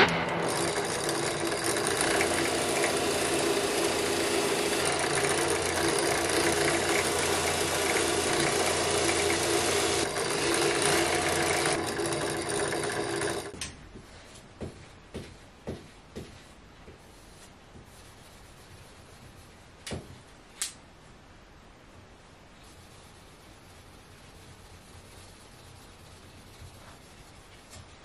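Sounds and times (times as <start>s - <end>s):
drill press motor whirring: 0.0s - 13.6s.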